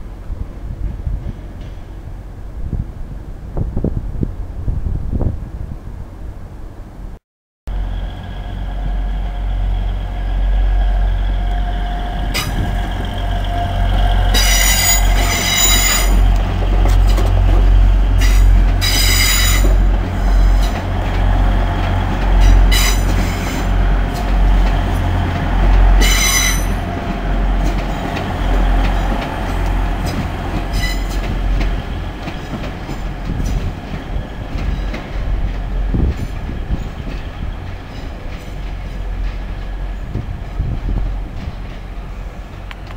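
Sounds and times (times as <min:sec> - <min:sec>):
diesel train engine rumble: 0:07.7 - 0:42.9
train wheels squealing: 0:07.9 - 0:16.3, 0:18.2 - 0:20.8, 0:26.0 - 0:27.0, 0:30.0 - 0:31.3.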